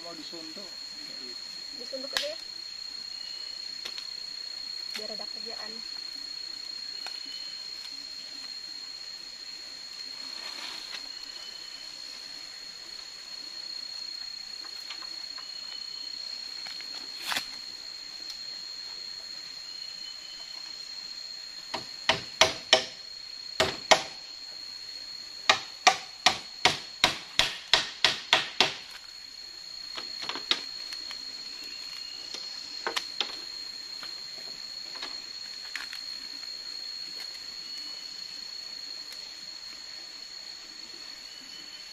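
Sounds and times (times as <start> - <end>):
high-pitched insect drone: 0.0 - 41.9
sharp knocks: 21.7 - 23.0, 23.6 - 24.2, 25.5 - 28.9.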